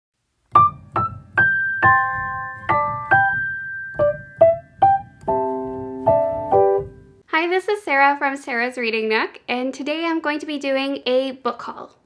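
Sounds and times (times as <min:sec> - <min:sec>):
gentle piano music: 0:00.5 - 0:07.2.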